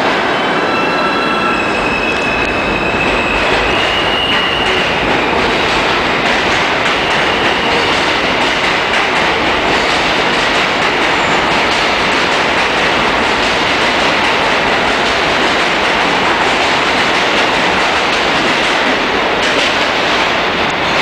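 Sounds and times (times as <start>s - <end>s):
subway train running past: 0.0s - 21.0s
high wheel squeal: 0.2s - 5.0s.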